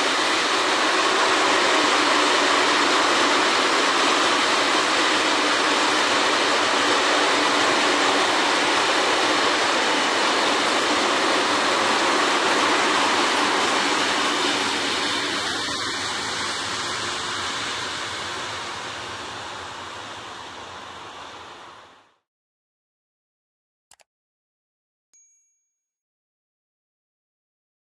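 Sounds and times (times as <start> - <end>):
freight train rolling on rails: 0.0 - 21.9.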